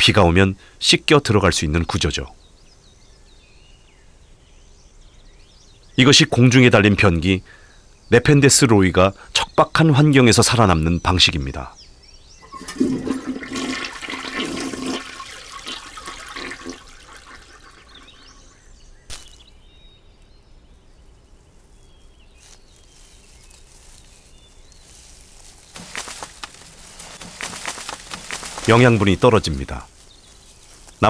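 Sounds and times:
faint forest ambience: 0.0s - 31.0s
toilet flushing: 12.4s - 18.4s.

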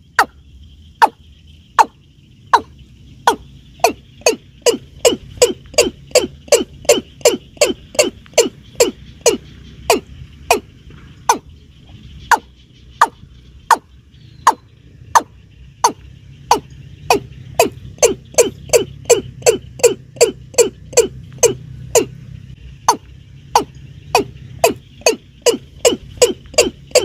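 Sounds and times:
watercock calling: 1.0s - 22.2s, 22.8s - 27.0s.

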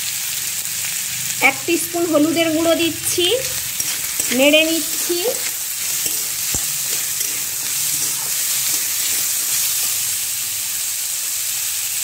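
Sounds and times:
potatoes sizzling in oil: 0.0s - 12.0s
metal spatula scraping pan: 1.9s - 10.2s.

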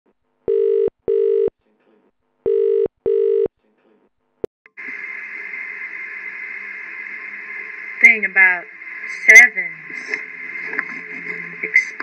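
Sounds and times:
telephone ringing tone: 0.5s - 1.5s, 2.5s - 3.5s.

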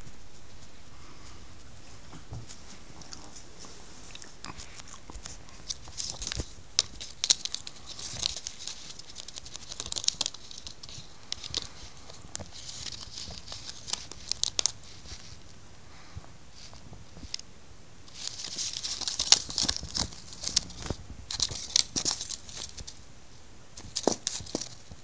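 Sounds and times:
plastic packaging crinkling: 4.1s - 15.5s, 18.1s - 23.0s, 23.8s - 25.0s.

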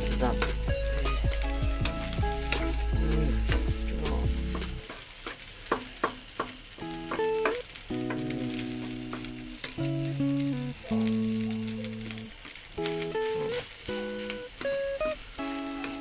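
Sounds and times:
background music: 0.0s - 4.8s
wooden spatula scraping wok: 0.0s - 9.5s
rice sizzling in a wok: 0.0s - 16.0s.

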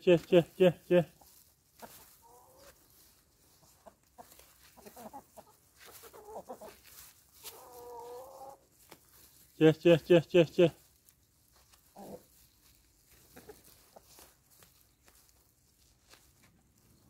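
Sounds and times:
hens clucking softly: 1.2s - 8.7s, 11.7s - 12.5s, 13.1s - 14.5s.

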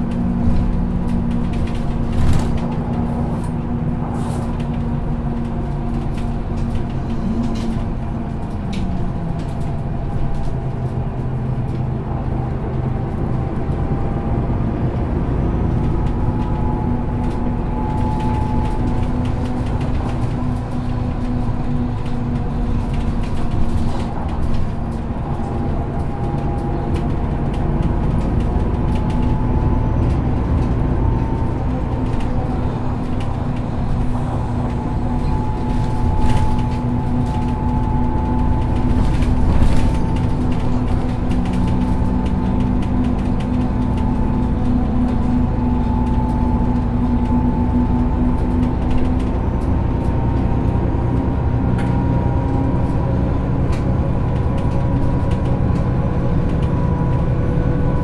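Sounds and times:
bus engine drone: 0.0s - 58.0s.

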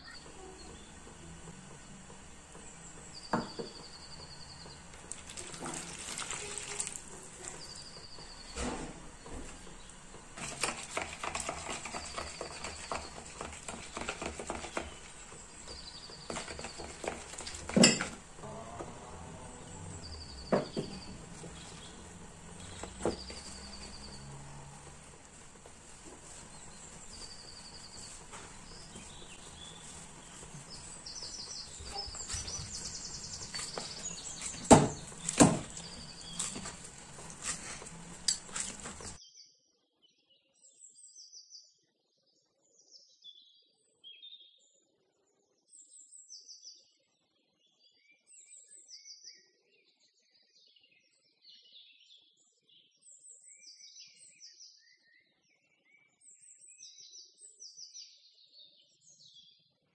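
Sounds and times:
hands kneading dough: 0.0s - 39.2s
spoon scraping plastic bowl: 0.0s - 39.2s
spoon knocking against bowl: 16.3s - 18.4s.

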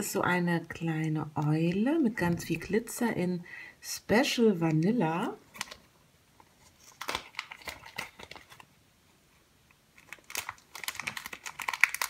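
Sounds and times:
plastic bag crinkling: 5.5s - 5.8s, 6.6s - 8.7s, 10.0s - 12.0s.

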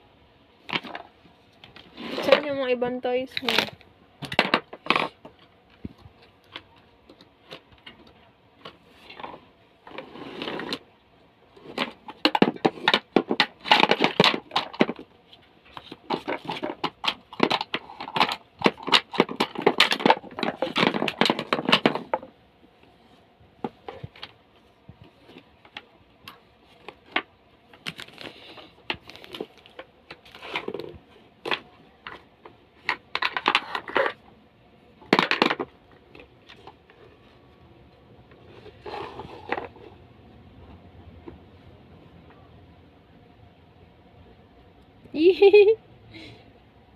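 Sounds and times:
wooden blocks clicking and scraping: 3.3s - 10.9s, 11.5s - 22.9s, 23.6s - 34.3s, 35.0s - 37.5s, 38.2s - 40.0s.

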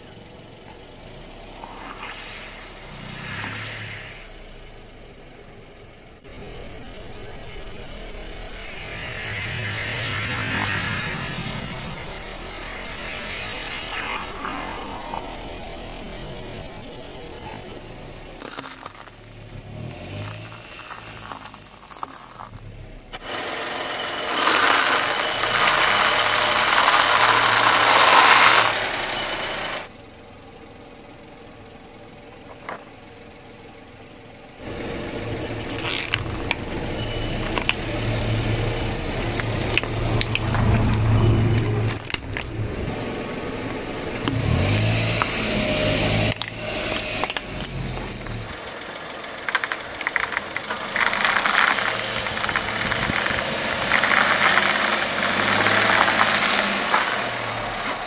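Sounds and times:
car engine humming: 0.0s - 58.0s
sharp cracks and clicks: 18.4s - 19.5s, 24.3s - 28.9s, 46.2s - 48.4s, 49.4s - 58.0s
tyre crushing objects: 18.4s - 22.6s, 24.3s - 28.8s.

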